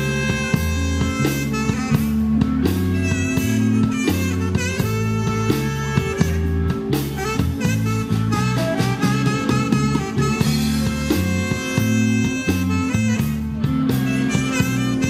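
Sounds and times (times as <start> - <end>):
blues band playing: 0.0 - 15.0.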